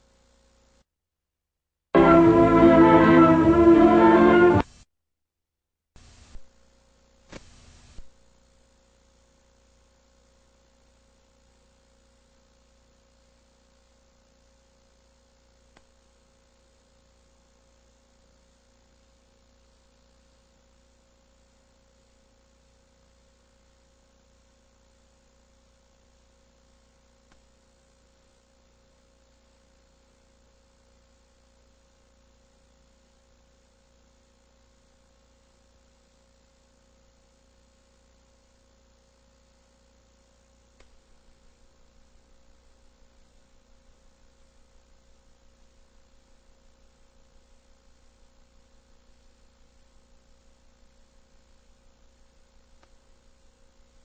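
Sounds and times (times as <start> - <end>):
bursts of glitch noise: 2.0 - 4.6
videotape hiss: 2.0 - 4.8, 6.0 - 9.8.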